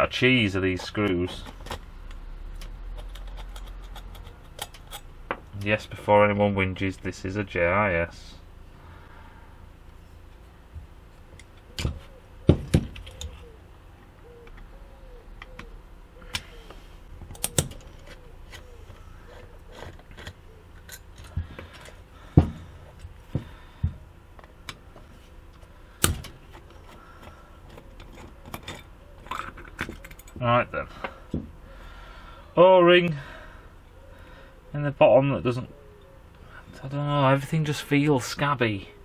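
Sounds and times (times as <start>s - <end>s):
screwdriver clicking on metal parts: 2.6s - 5.1s.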